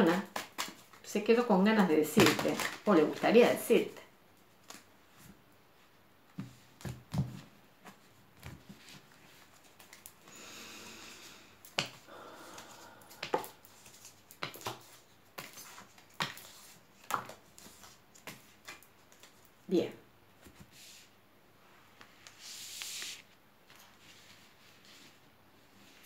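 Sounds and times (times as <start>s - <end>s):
cards being shuffled: 0.0s - 1.0s, 2.1s - 3.3s, 6.4s - 10.3s, 12.6s - 19.5s
cards snapping and clicking: 0.2s - 1.0s.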